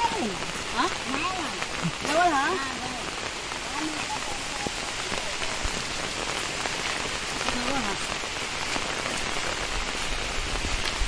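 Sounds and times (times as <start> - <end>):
rain on foliage and road: 0.0 - 11.0.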